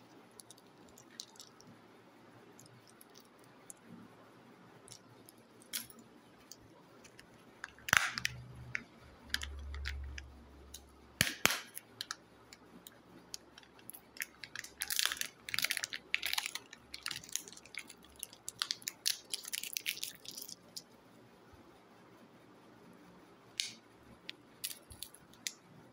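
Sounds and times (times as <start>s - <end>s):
plastic egg clicks: 4.9s - 10.3s, 11.2s - 20.8s
foil wrapper crinkling: 13.4s - 20.8s.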